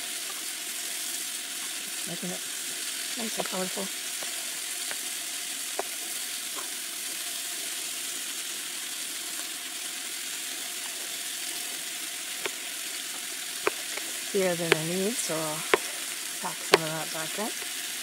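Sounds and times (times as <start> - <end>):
vegetables sizzling in a skillet: 0.0 - 18.0
knife tapping on cutting board: 16.7 - 16.9.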